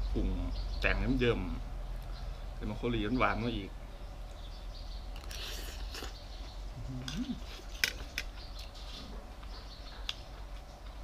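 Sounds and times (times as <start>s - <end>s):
person humming: 6.8s - 7.6s.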